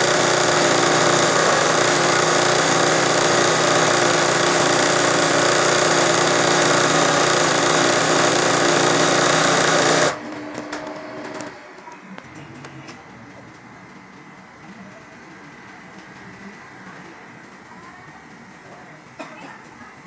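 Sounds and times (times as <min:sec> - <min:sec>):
sewing machine running: 0:00.0 - 0:11.5.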